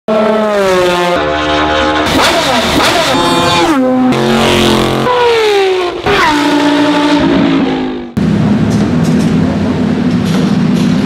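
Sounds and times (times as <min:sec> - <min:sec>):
racing car engines revving: 0:00.1 - 0:10.8.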